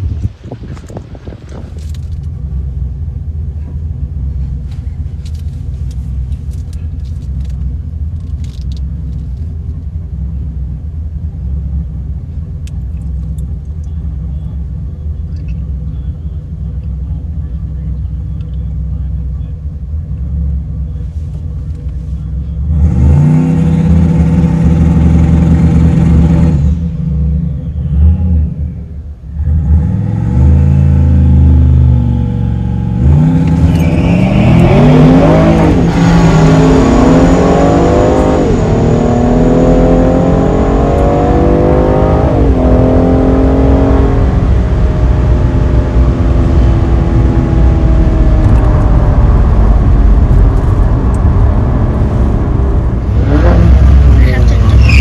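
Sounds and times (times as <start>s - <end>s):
road and wind noise: 0.0s - 55.0s
car engine revving and accelerating: 22.1s - 55.0s.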